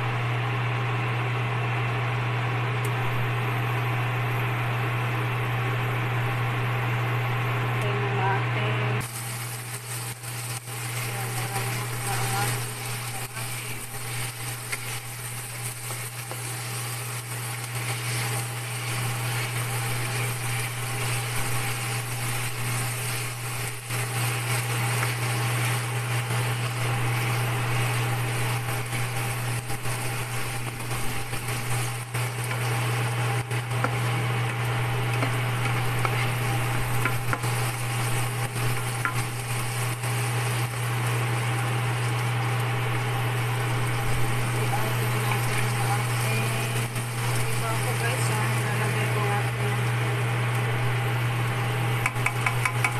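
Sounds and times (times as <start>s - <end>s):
steady low hum: 0.0s - 52.9s
spatula stirring in pan: 9.0s - 48.4s, 52.0s - 52.9s
sausage sizzling in frying pan: 9.0s - 52.9s.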